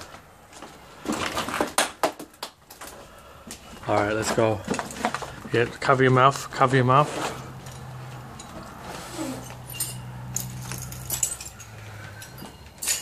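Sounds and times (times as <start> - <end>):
footsteps crunching on rubble: 0.0 - 1.8, 2.8 - 6.8.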